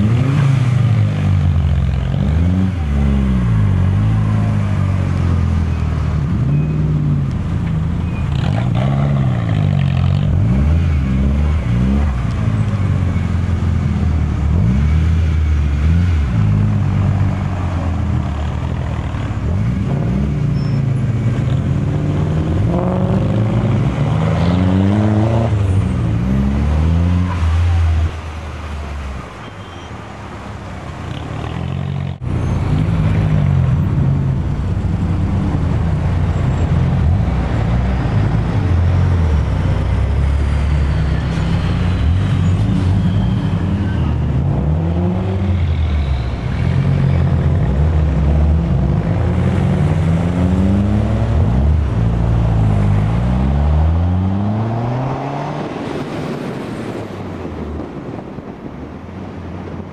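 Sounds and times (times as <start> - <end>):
car engine accelerating through gears: 19.0 - 28.0, 46.6 - 56.3.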